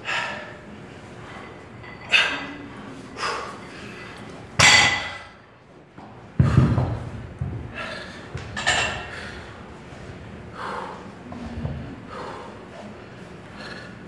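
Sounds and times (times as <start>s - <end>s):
heavy thud: 6.4s - 8.5s.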